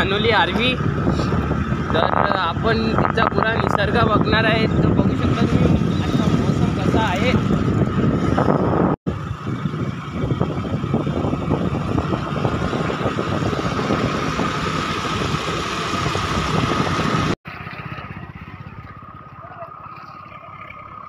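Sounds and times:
wind buffeting microphone: 0.0 - 20.0
scooter engine: 4.8 - 21.0
tyres on wet road: 9.1 - 21.0.

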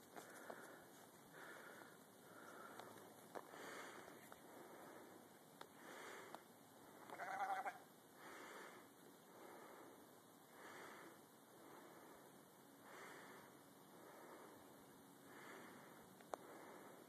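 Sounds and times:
sheep bleating: 7.1 - 7.9.

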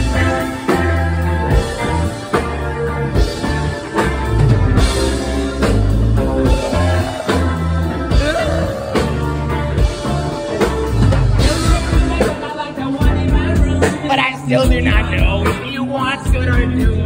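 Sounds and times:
live rock band playing: 0.0 - 17.0
person singing: 6.2 - 17.0.

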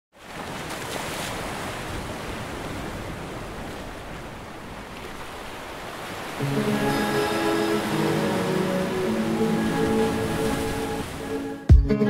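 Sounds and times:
ocean surf breaking: 0.2 - 11.7
music with sustained chord: 6.4 - 11.7.

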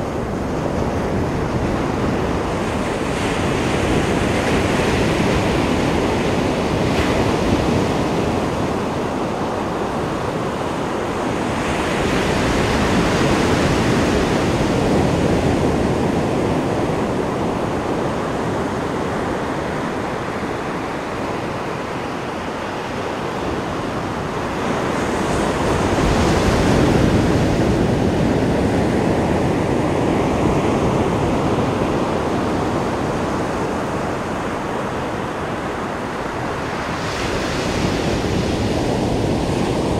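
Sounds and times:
ocean surf breaking on beach: 0.0 - 39.9.

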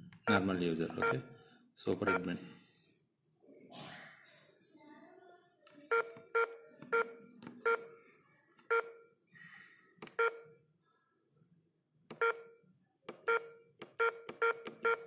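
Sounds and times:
short key-press beeps: 5.9 - 7.9, 13.2 - 15.0.

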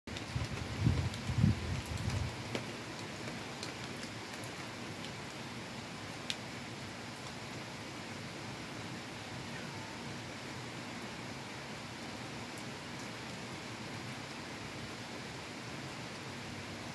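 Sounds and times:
raindrops splattering on railing: 0.1 - 5.5, 6.2 - 6.5
heavy rain falling: 0.1 - 16.9.

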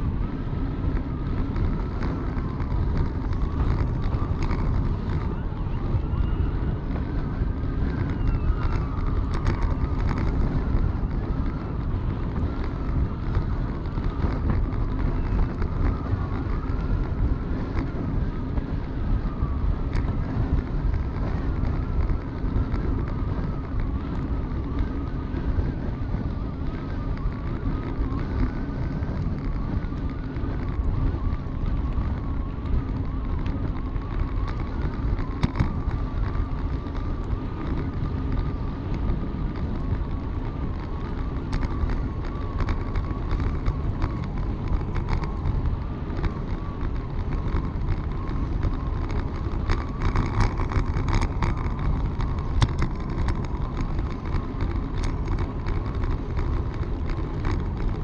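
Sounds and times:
wind rumble on microphone: 0.0 - 58.0
faint wavering whistling: 1.0 - 13.2.

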